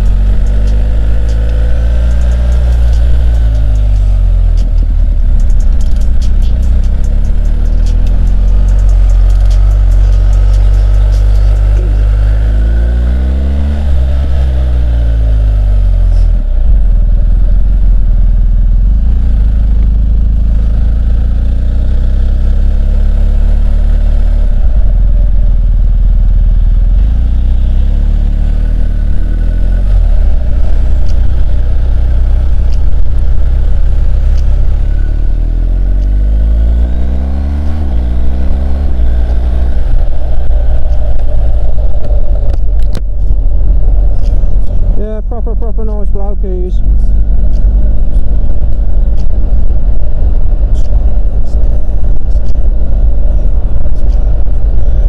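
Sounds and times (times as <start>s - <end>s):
motorcycle engine: 0.0s - 55.0s
wind rumble on microphone: 23.7s - 55.0s.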